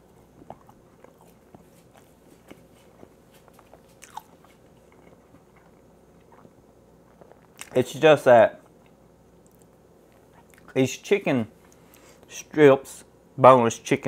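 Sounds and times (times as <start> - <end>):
man chewing with wet mouth smacks: 0.0 - 7.8, 8.6 - 10.8.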